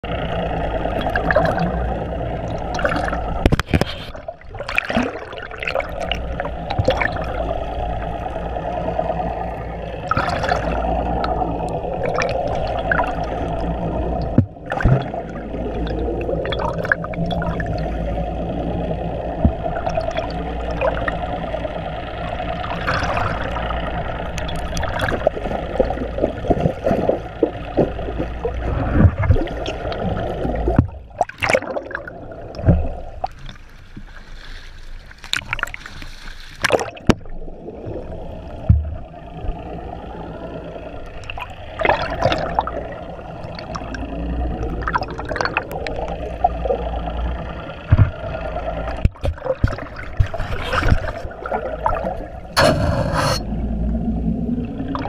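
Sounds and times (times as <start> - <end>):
steady low rumble: 0.0 - 55.0
water rushing and gurgling: 0.0 - 55.0
knocks and clicks: 47.9 - 48.2.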